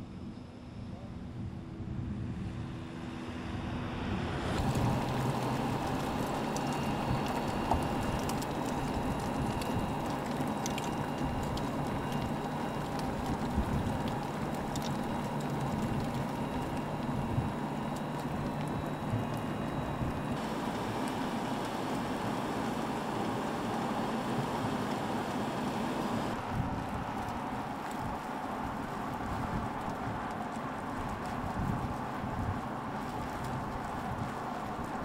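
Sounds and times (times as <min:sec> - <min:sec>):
low engine hum: 0:00.0 - 0:35.0
tyre and wind noise: 0:03.6 - 0:21.4, 0:26.0 - 0:35.0
faint ticks: 0:04.6 - 0:20.2.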